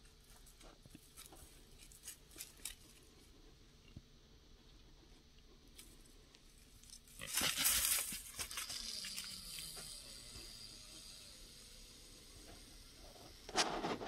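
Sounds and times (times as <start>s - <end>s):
loud rustling and crackling: 7.2s - 9.3s.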